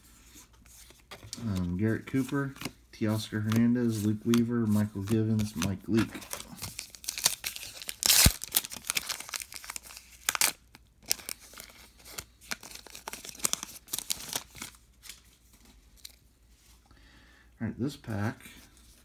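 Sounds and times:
foil wrapper crinkling: 0:05.2 - 0:14.8
foil wrapper ripping: 0:06.7 - 0:11.5.

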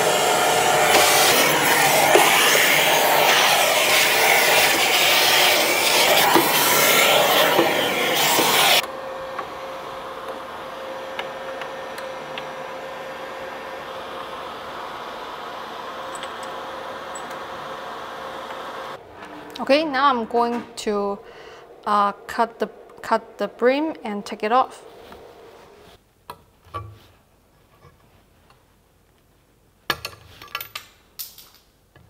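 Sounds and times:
vacuum running loud: 0:00.0 - 0:20.2.

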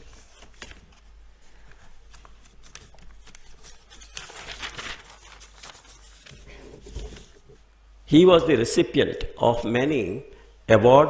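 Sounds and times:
paper rustling: 0:00.0 - 0:07.6.

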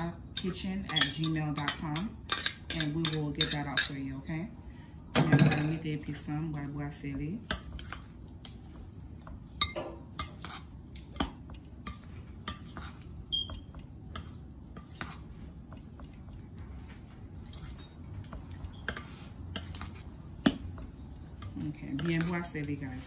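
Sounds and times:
spoon stirring thick batter: 0:00.0 - 0:04.4, 0:05.7 - 0:23.0
spoon clinking on glass bowl: 0:00.4 - 0:04.0.

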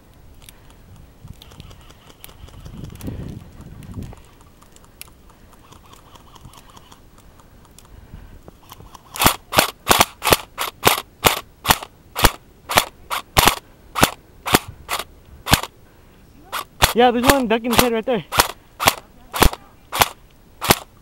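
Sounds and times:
airsoft gun shots: 0:09.2 - 0:15.7, 0:16.5 - 0:20.9.

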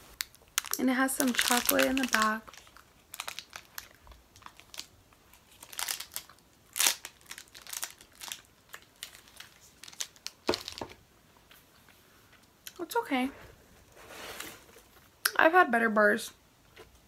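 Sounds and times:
foil wrapper crinkling: 0:00.2 - 0:11.0.

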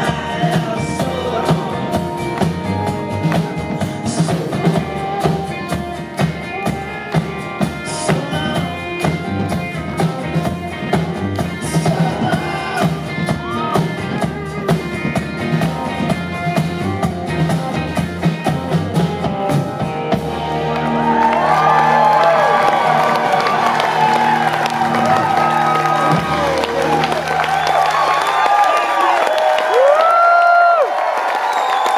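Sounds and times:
live band playing: 0:00.0 - 0:31.9
crowd cheering and whooping: 0:20.1 - 0:31.9.

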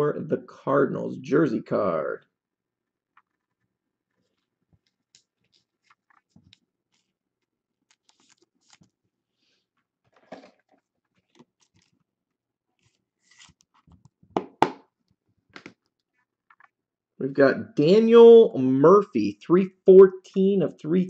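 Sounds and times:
plastic sleeve crinkling and clicking: 0:03.1 - 0:09.1, 0:09.8 - 0:12.1
card scraping: 0:07.9 - 0:08.9, 0:12.8 - 0:14.0.

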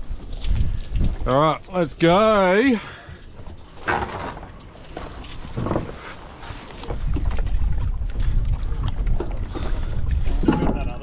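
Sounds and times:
wind buffeting microphone: 0:04.5 - 0:11.0.

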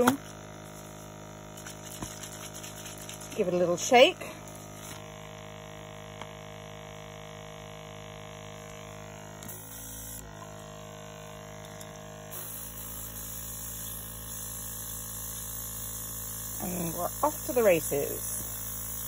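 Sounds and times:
compressor humming: 0:00.0 - 0:19.0
airbrush spraying: 0:00.6 - 0:03.6, 0:12.3 - 0:19.0.

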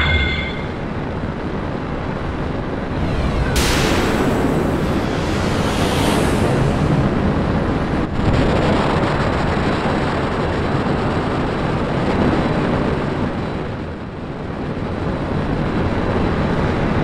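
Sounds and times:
jet engine roar: 0:00.0 - 0:01.0, 0:02.2 - 0:10.9.

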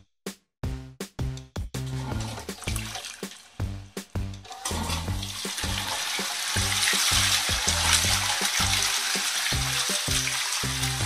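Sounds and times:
background music with bass line: 0:00.0 - 0:11.0
rushing hissing water: 0:04.5 - 0:11.0.

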